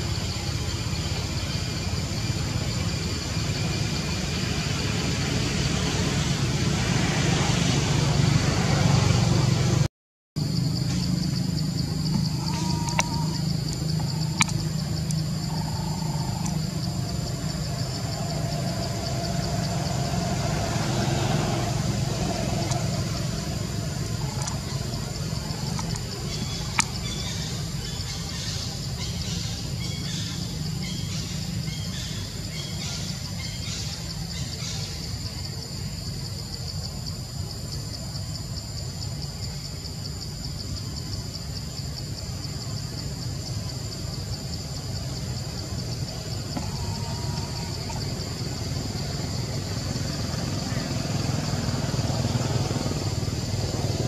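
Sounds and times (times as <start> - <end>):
low engine-like rumble: 0.0 - 38.2, 38.8 - 54.0
insect drone: 0.0 - 54.0
soft chirps: 10.4 - 20.5, 21.5 - 31.4.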